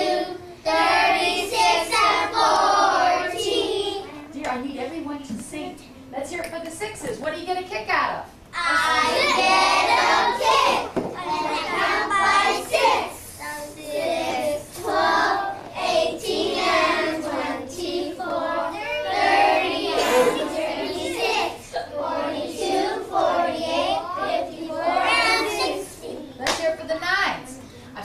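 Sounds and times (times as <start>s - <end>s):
children singing together: 0.0s - 4.1s, 8.6s - 26.3s.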